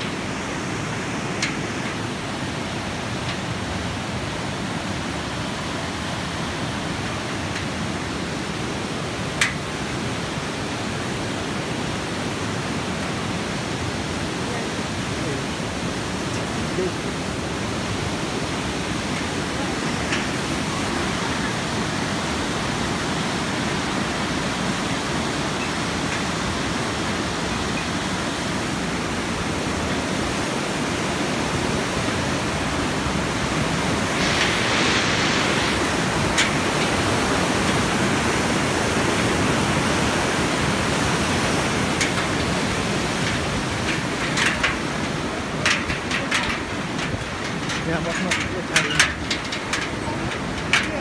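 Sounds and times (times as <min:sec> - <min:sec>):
flooded river rushing: 0:00.0 - 0:51.0.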